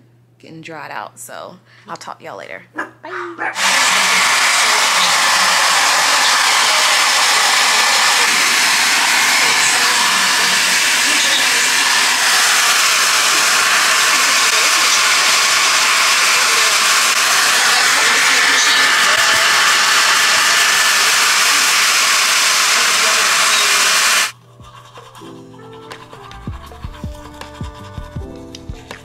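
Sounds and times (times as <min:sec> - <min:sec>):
hair dryer blowing air: 0:03.6 - 0:24.4
hair dryer motor whine: 0:03.6 - 0:24.4.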